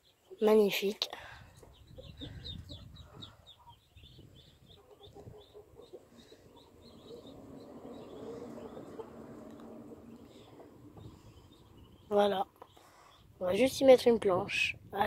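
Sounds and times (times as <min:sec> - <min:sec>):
ducklings peeping: 0:01.4 - 0:13.6
low rumble: 0:05.4 - 0:12.2.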